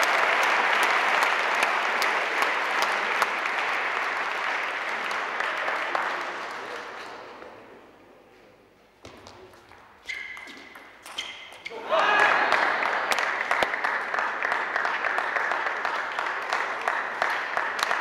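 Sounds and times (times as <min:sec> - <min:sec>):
audience applauding: 0:00.0 - 0:07.2, 0:12.0 - 0:18.0.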